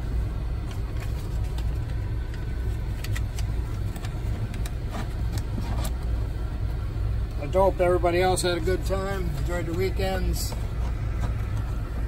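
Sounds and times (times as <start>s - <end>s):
engine idling: 0.0s - 12.0s.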